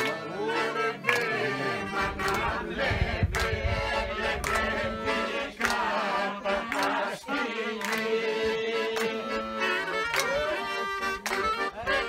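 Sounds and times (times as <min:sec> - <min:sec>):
accordion: 0:00.0 - 0:12.0
clarinet: 0:00.1 - 0:02.9, 0:08.4 - 0:12.0.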